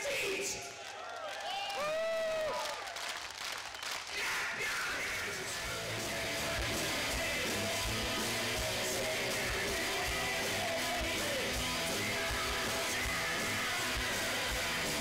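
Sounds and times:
electric guitars: 0:04.8 - 0:15.0.

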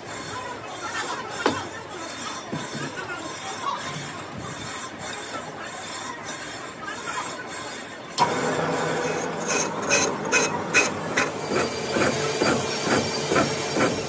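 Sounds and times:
metal lathe spinning: 0:05.2 - 0:14.0.

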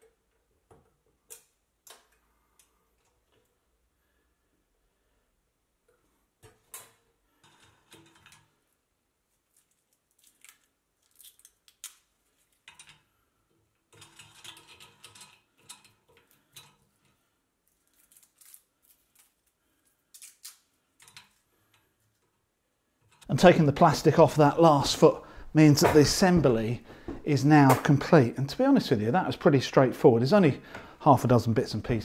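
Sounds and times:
plastic film peeling: 0:09.3 - 0:12.7, 0:17.6 - 0:20.9.

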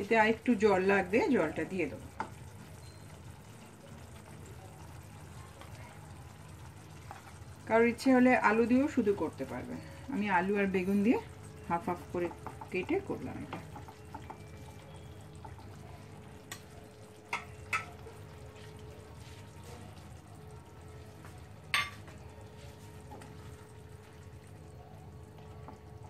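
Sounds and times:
spatulas stirring in pan: 0:11.8 - 0:16.7
spatulas knocking on pan: 0:17.3 - 0:18.0, 0:21.7 - 0:22.1.

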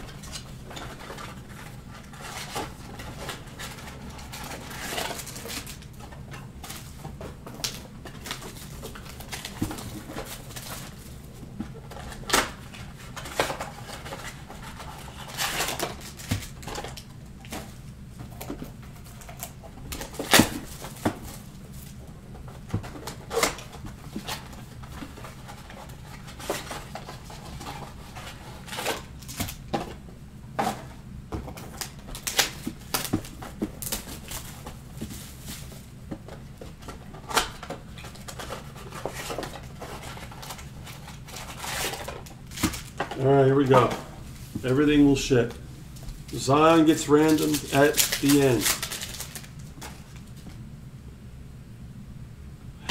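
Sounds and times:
low steady hum: 0:00.0 - 0:52.9
plastic shrink-wrap crinkling: 0:00.1 - 0:06.0, 0:31.7 - 0:35.9, 0:37.2 - 0:44.8, 0:46.2 - 0:50.4.

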